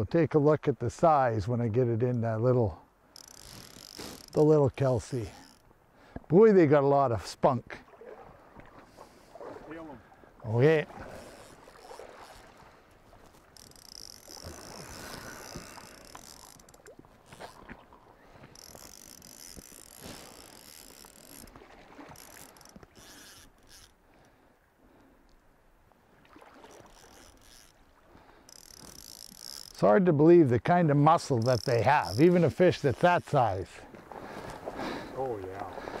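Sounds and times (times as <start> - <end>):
fishing reel drag buzzing: 3.1 - 5.7, 11.1 - 12.6, 13.4 - 17.7, 18.4 - 24.0, 26.6 - 29.8, 31.2 - 33.3.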